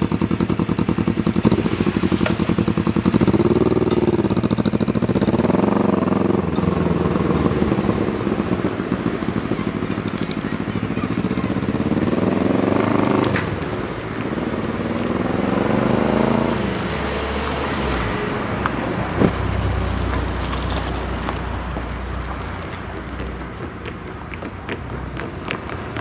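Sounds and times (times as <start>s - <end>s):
engine accelerating through gears: 0.0s - 10.1s, 11.2s - 21.8s
motorcycle driving over tracks: 0.0s - 26.0s
car passing with low engine hum: 1.2s - 26.0s.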